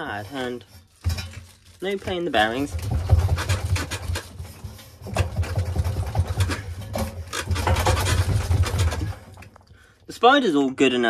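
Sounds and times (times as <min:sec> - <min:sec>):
washing machine drum rumbling: 0:01.0 - 0:09.6.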